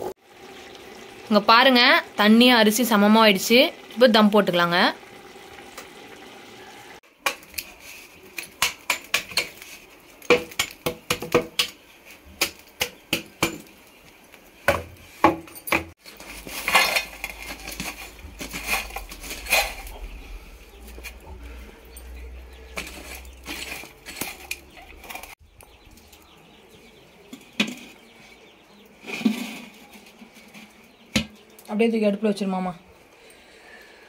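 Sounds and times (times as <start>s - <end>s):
embers scraping onto a metal plate: 7.1s - 10.8s, 16.0s - 26.1s, 27.2s - 31.6s.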